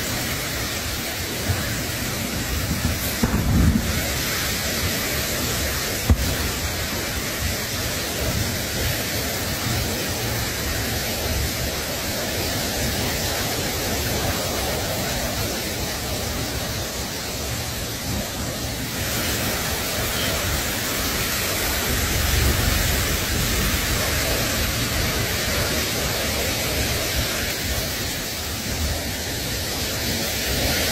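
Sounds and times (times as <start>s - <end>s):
static-like hiss: 0.0s - 30.9s.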